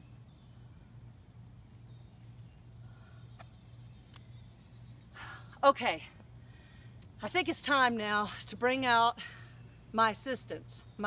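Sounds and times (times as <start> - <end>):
distant bird chirps: 0.0 - 7.0
steady low hum: 0.0 - 11.0.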